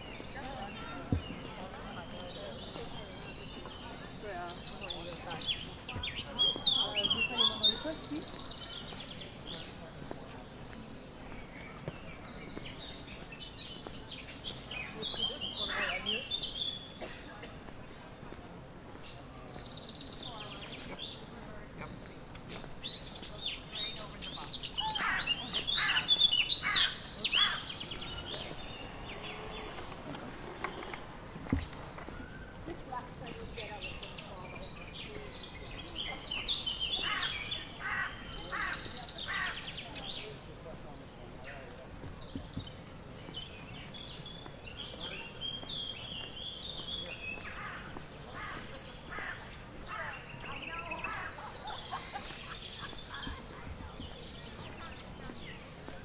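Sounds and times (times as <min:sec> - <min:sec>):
songbirds singing: 0:00.0 - 0:56.0.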